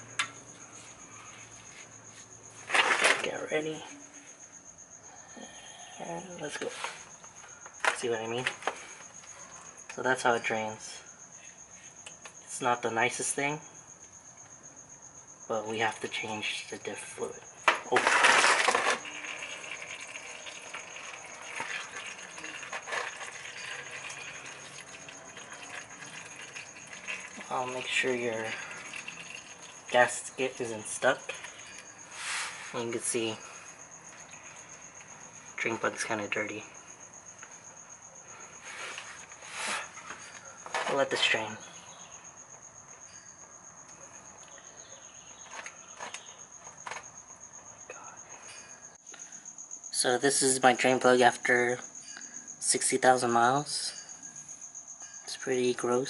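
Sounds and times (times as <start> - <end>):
oil trickling into pan: 19.0 - 30.0.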